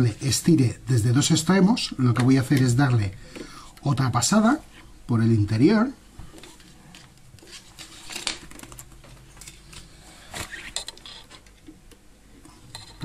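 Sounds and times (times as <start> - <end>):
cable clicking and rustling: 6.2 - 13.0.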